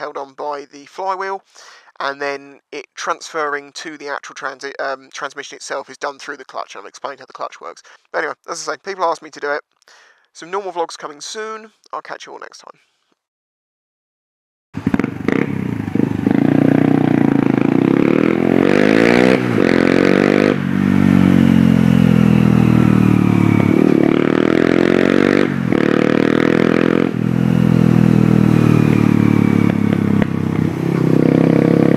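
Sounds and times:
motorcycle engine revving: 0:14.8 - 0:31.9.

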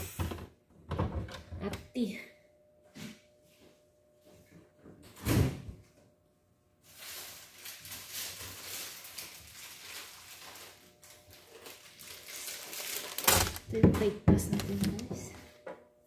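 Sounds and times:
plastic bags rustling: 0:06.8 - 0:13.8, 0:14.6 - 0:15.3.

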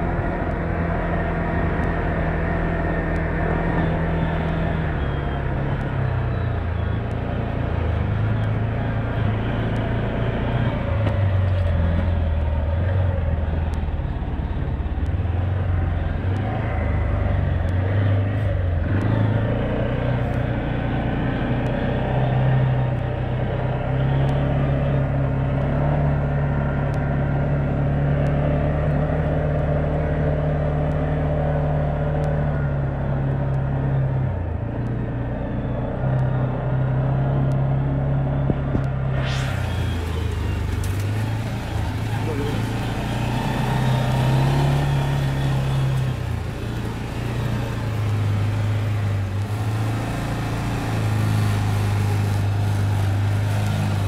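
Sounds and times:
four-wheeler engine running: 0:00.0 - 0:54.0.

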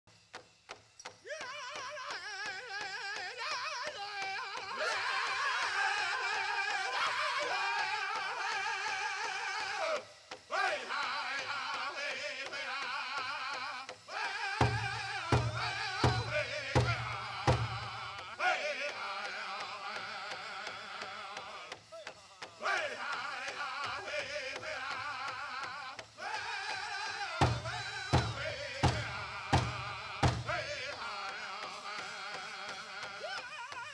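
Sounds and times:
voices singing in unison: 0:01.3 - 0:33.9
big drum beating: 0:14.2 - 0:18.4, 0:26.0 - 0:31.1.

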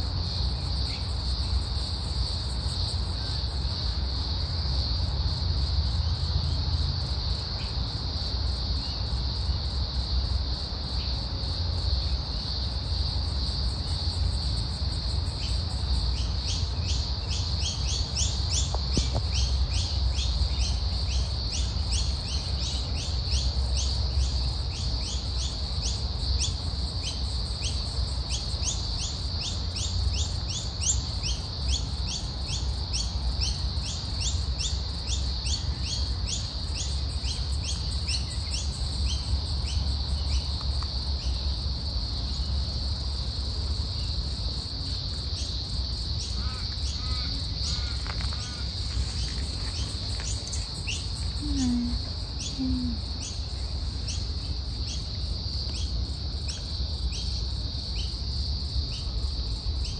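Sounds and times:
high-pitched insect drone: 0:41.2 - 0:55.9.

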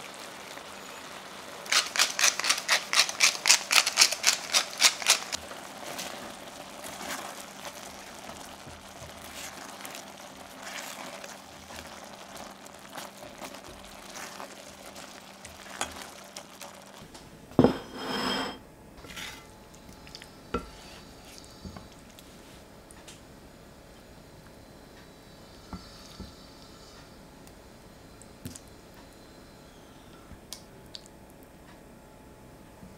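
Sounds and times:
spatula scraping a pan: 0:01.7 - 0:05.4, 0:08.3 - 0:16.2, 0:17.6 - 0:19.5, 0:20.6 - 0:21.6
bowl knocking on wooden table: 0:17.6 - 0:18.6.

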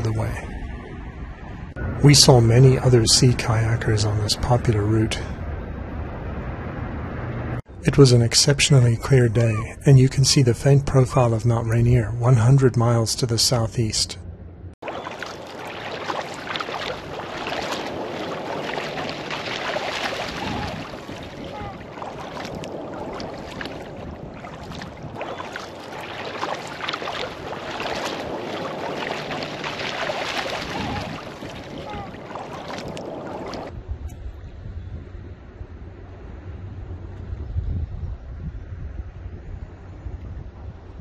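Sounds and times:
paddle strokes splashing: 0:14.8 - 0:33.7
water rushing along hull: 0:14.8 - 0:33.7
wind on microphone: 0:14.9 - 0:41.0.

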